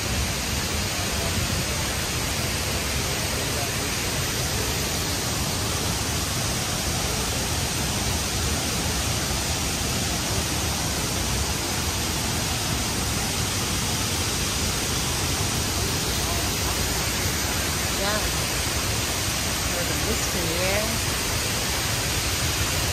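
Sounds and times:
waterfall rushing: 0.0 - 22.9.

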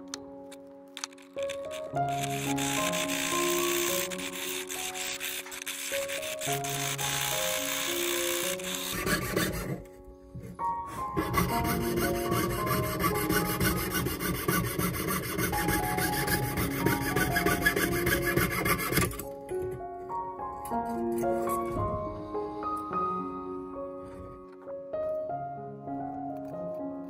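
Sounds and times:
soft piano music: 0.0 - 27.0
saw cutting metal sheet: 1.0 - 9.9, 10.9 - 19.2.

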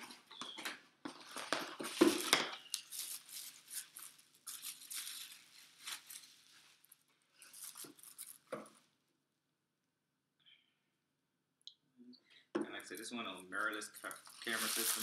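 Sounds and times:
plastic packaging crinkling: 0.0 - 8.9, 12.8 - 15.0.

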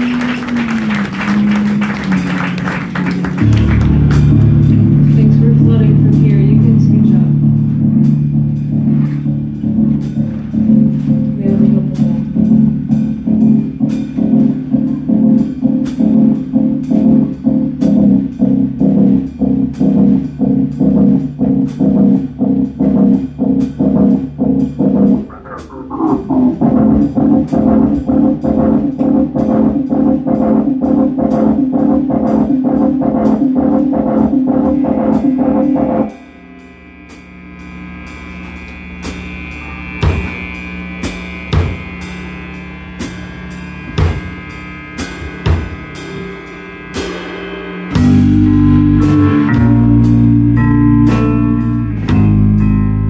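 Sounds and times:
live rock band playing: 0.0 - 36.5, 38.1 - 53.0
amplifier ringing hum: 3.3 - 19.6, 20.2 - 53.0
pitch sliding down: 25.0 - 37.0.

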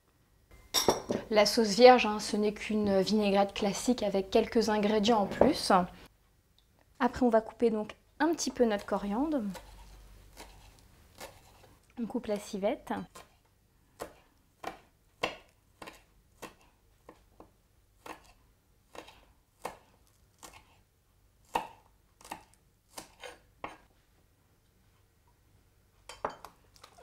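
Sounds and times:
knife slicing on wooden board: 9.5 - 11.7, 18.0 - 20.8, 21.5 - 23.8.

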